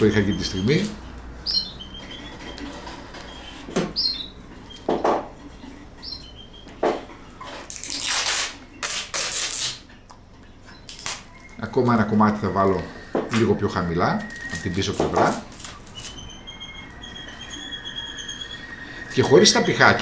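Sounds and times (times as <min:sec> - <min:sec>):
bird chirps: 0:01.4 - 0:02.6, 0:03.3 - 0:04.8, 0:05.6 - 0:06.7
adhesive tape pulled and torn: 0:07.7 - 0:09.8, 0:10.9 - 0:11.3, 0:14.4 - 0:16.2.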